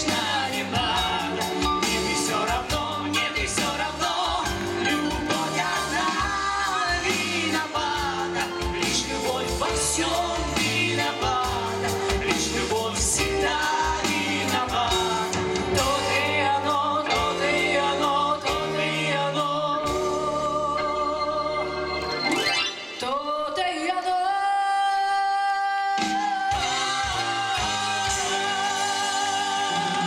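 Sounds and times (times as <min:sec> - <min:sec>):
pop-rock band playing: 0:00.0 - 0:30.0
woman singing: 0:23.0 - 0:30.0.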